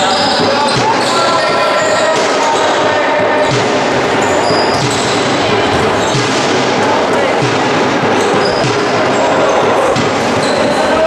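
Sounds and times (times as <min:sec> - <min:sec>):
echoing hall noise with voices: 0:00.0 - 0:11.0
ball bouncing on wooden floor: 0:03.2 - 0:06.6.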